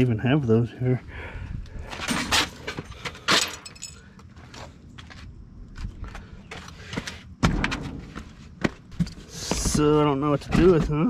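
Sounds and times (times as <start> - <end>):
loud knock: 7.4 - 8.3
junk thumping in a dumpster: 7.4 - 11.0.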